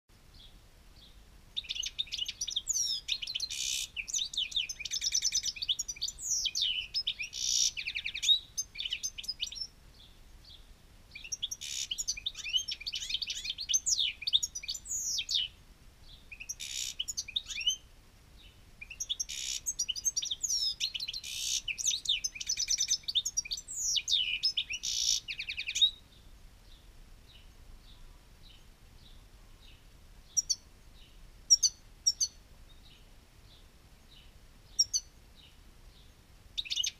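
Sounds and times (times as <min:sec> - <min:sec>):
bird twittering song: 0:00.3 - 0:36.9.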